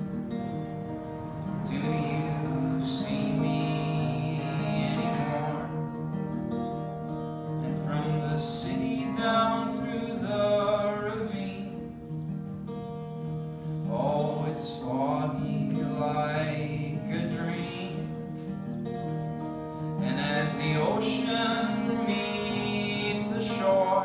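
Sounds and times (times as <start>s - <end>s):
acoustic guitar playing: 0.0s - 24.0s
man singing: 1.2s - 6.2s, 7.6s - 12.0s, 13.8s - 18.5s, 19.8s - 24.0s.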